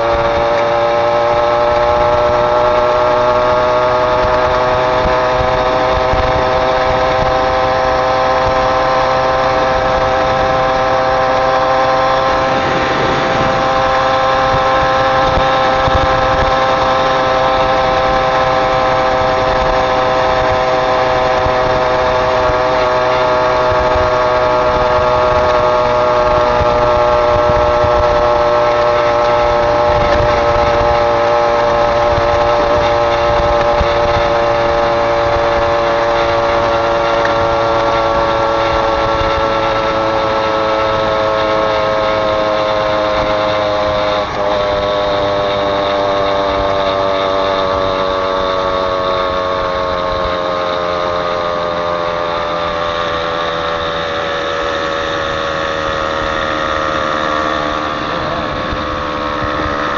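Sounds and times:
moped engine running: 0:00.0 - 0:59.9.

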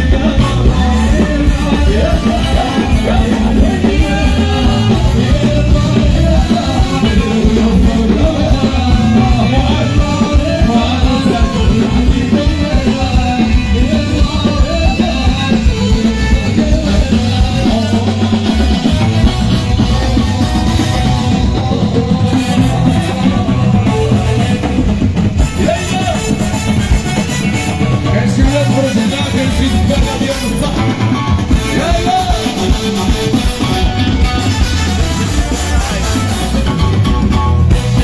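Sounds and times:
live band music through pa: 0:00.0 - 0:38.0.

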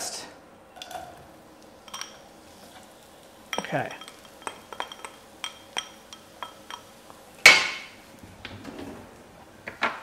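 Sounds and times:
utensil clinking ceramic bowl: 0:01.8 - 0:02.2, 0:03.5 - 0:07.7.

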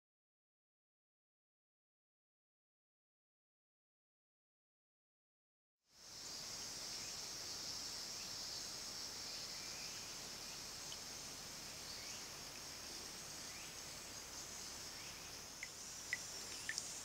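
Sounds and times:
insect chorus buzzing: 0:05.9 - 0:17.0.

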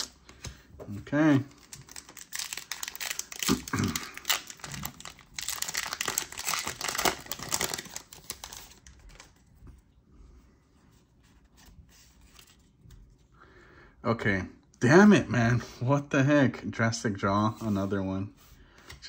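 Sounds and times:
faint handling of cards: 0:00.0 - 0:13.4
foil wrapper crinkling and tearing: 0:01.5 - 0:09.4.

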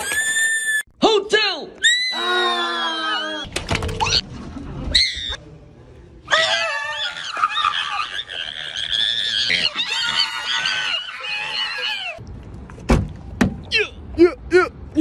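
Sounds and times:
person shrieking: 0:01.8 - 0:03.5.

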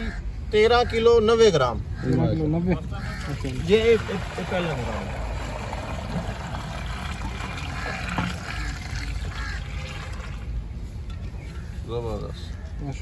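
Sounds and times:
milk pouring splash: 0:03.4 - 0:10.6.

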